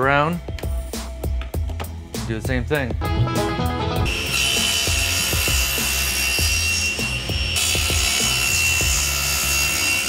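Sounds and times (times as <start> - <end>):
background music with steady beat: 0.0 - 9.2
table saw whining: 4.1 - 10.0.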